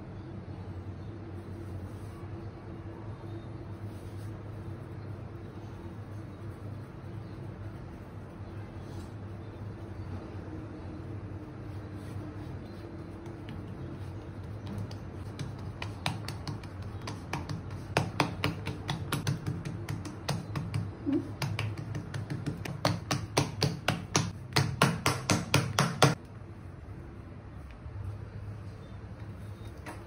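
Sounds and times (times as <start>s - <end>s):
hands slapping dough: 13.1s - 26.2s.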